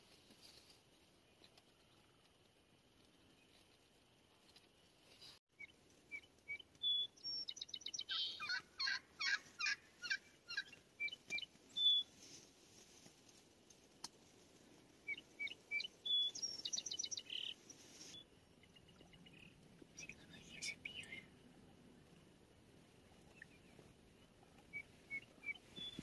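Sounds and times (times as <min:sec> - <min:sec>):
turkey gobbling: 0:08.1 - 0:11.2.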